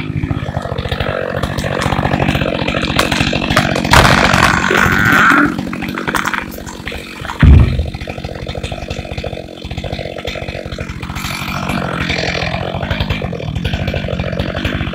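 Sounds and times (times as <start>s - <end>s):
chainsaw idling: 0.0s - 14.9s
heavy low thump of falling trunk: 7.4s - 8.0s.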